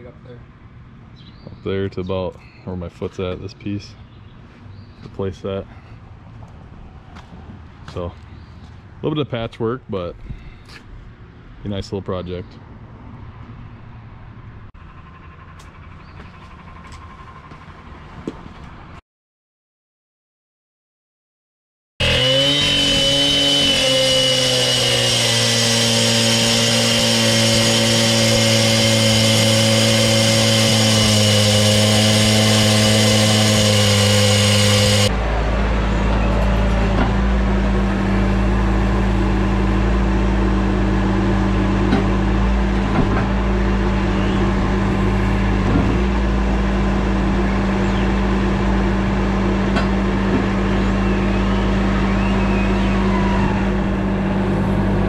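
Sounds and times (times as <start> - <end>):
diesel loader engine running: 12.8 - 19.0, 22.0 - 55.0
cut-off saw cutting concrete: 22.0 - 55.0.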